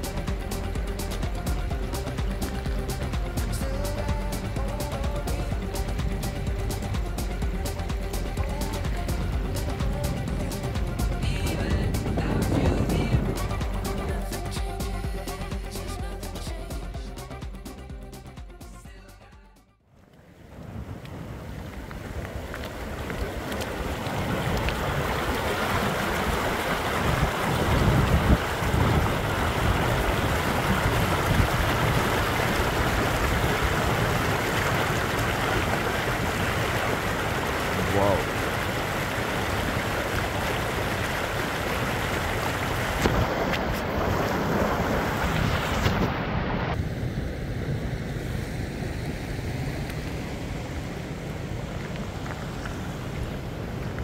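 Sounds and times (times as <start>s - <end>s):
stream rushing over rocks: 0.0s - 17.3s, 20.2s - 46.8s, 48.7s - 54.0s
wind buffeting microphone: 6.4s - 14.2s, 20.3s - 54.0s.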